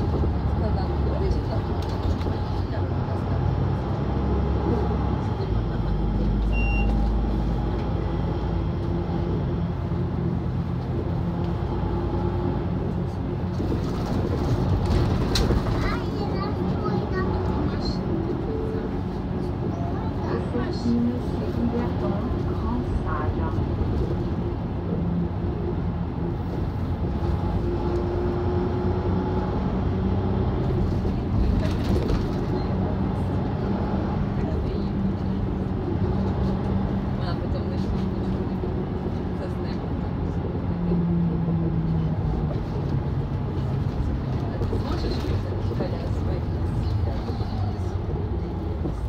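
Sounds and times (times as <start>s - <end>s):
bus engine running: 0.0s - 49.0s
road noise: 0.0s - 49.0s.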